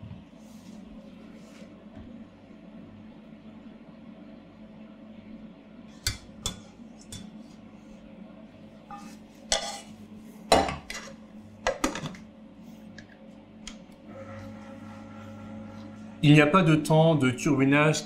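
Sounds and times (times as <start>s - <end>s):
low machine hum: 0.0s - 18.0s
metal bowl clanking and scraping: 8.9s - 12.2s.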